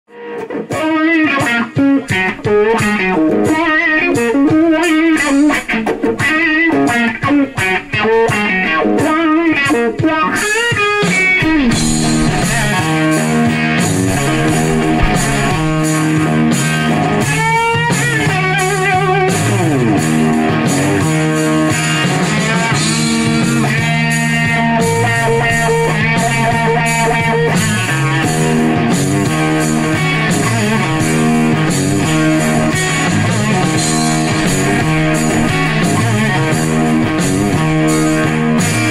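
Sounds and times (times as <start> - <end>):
lead guitar melody: 0.2 - 17.3, 18.4 - 38.9
rhythmic backing: 10.8 - 16.5, 31.8 - 38.9
bass line: 11.3 - 16.1.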